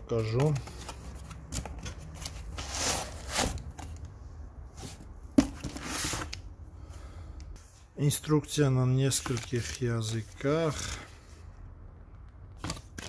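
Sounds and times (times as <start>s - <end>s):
foam and cardboard rustling: 0.1s - 3.9s.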